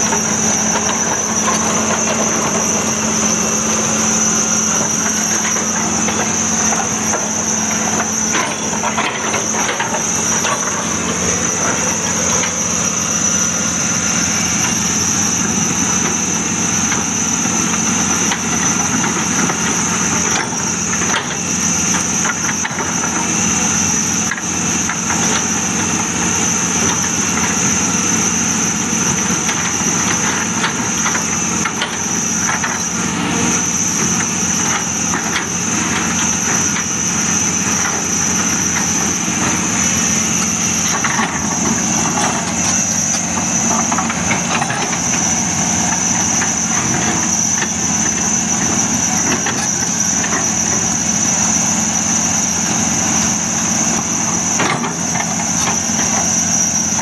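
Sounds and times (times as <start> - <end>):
high-pitched whine: 0.0 - 18.5
excavator diesel engine running: 0.0 - 57.0.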